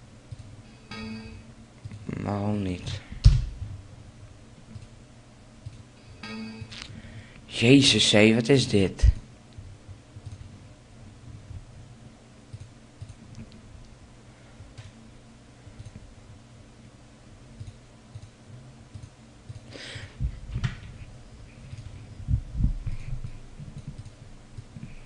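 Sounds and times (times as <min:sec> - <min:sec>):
low steady hum: 0:00.0 - 0:25.0
computer mouse clicks: 0:10.2 - 0:10.5, 0:12.5 - 0:13.6, 0:15.8 - 0:16.0, 0:17.6 - 0:19.7, 0:23.7 - 0:24.8.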